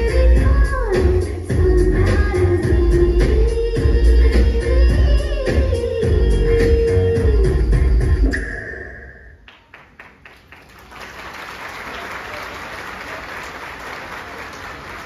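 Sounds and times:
dance music: 0.0s - 8.5s
audience applause: 9.5s - 15.0s.

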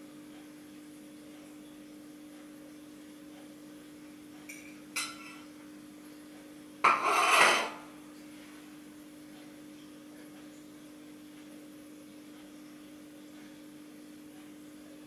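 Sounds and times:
plate scraping on tile floor: 6.8s - 7.8s
plate clinking: 6.9s - 7.8s.

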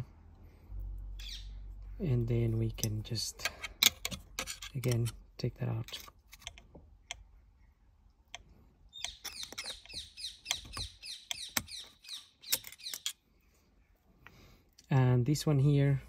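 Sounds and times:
plastic plug squeaking and clicking: 8.3s - 13.2s.

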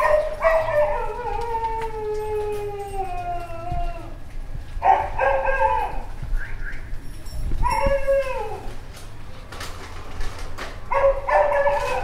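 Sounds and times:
dog barking: 0.0s - 0.9s, 4.8s - 6.1s, 10.9s - 12.0s
dog howling: 0.0s - 4.2s, 7.6s - 8.7s.

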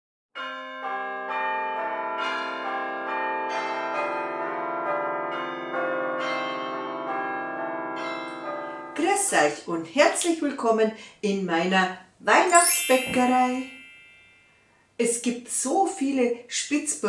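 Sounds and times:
bells chiming: 12.5s - 14.5s.

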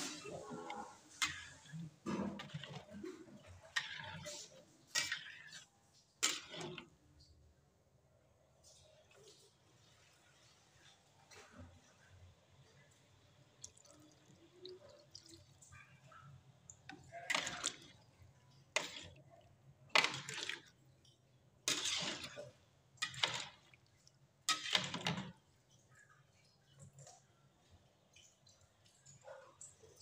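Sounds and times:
liquid sloshing and splashing: 0.0s - 7.0s, 12.8s - 27.2s
metal spoon stirring in wok: 0.0s - 7.0s, 16.9s - 25.3s.

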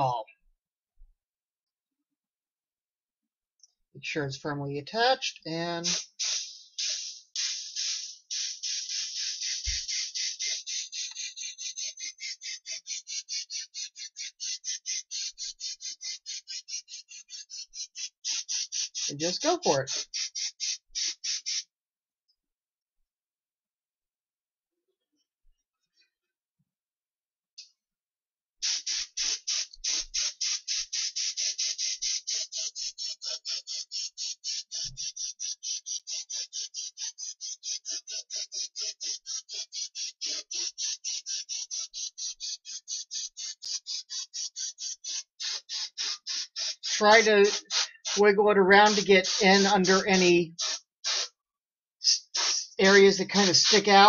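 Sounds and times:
spray gun pulsing hiss: 5.8s - 21.6s, 28.6s - 33.6s, 43.2s - 51.3s, 52.0s - 54.0s.

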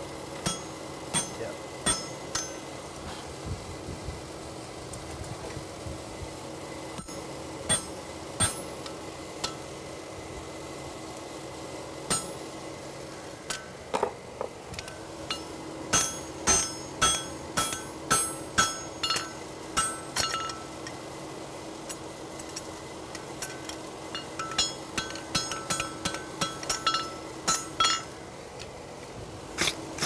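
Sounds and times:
hammer striking metal on anvil: 0.4s - 2.7s, 7.0s - 9.6s, 12.1s - 12.4s, 15.3s - 20.7s, 23.4s - 28.1s.

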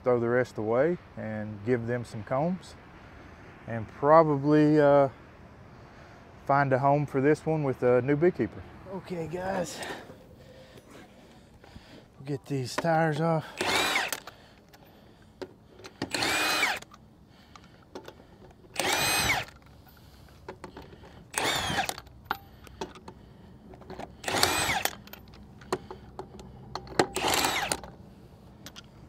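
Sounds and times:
power tool spinning lug nuts: 12.8s - 15.0s, 15.8s - 23.1s, 23.8s - 28.0s
light clicks of nuts handled: 21.9s - 28.0s, 28.6s - 29.0s.

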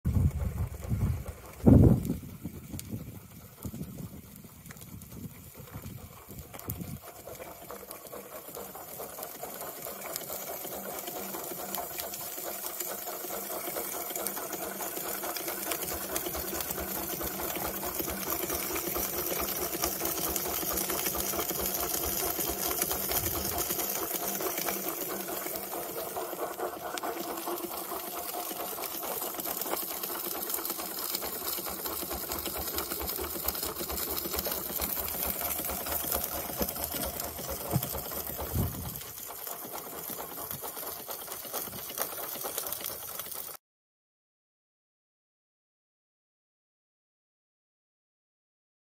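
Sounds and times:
wind buffeting microphone: 0.1s - 7.0s, 38.4s - 39.0s
steam engine mechanical clatter: 0.1s - 43.6s.

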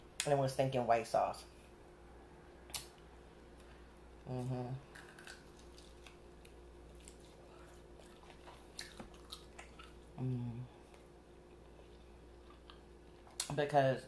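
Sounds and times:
mouth clicks and smacks: 2.7s - 3.0s
person humming: 4.3s - 4.8s, 10.2s - 10.8s
person chewing: 4.8s - 13.5s.

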